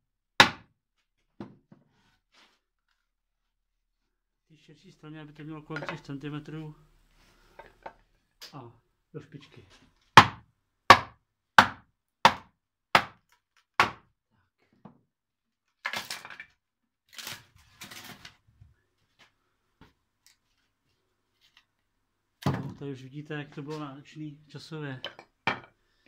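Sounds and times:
wood cracking and tearing: 17.1 - 18.4.

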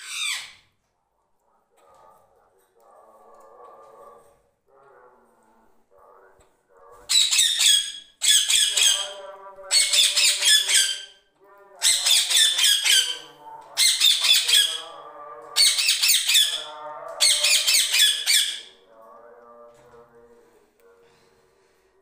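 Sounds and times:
parakeet screeching: 0.0 - 0.6, 7.1 - 11.2, 11.8 - 15.0, 15.6 - 18.8.

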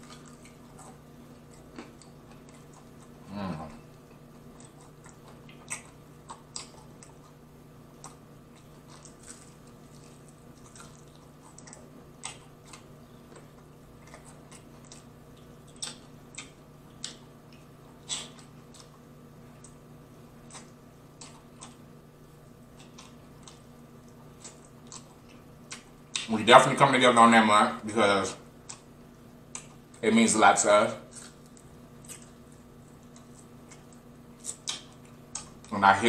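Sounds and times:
wet chewing: 0.0 - 21.9, 22.7 - 26.3, 28.6 - 30.0, 31.0 - 35.8
faint steady hum: 0.0 - 36.0
lip smacks: 4.6 - 7.4, 8.0 - 19.0, 22.8 - 26.3, 29.5 - 29.8, 31.1 - 35.7.

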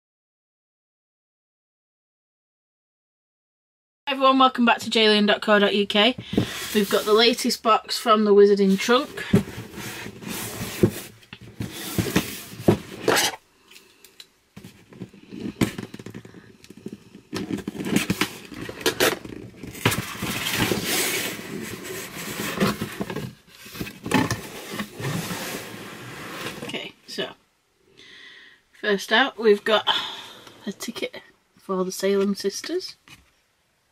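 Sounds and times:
cardboard box knocks and scrapes: 6.2 - 7.2, 8.9 - 13.4, 17.4 - 26.7.

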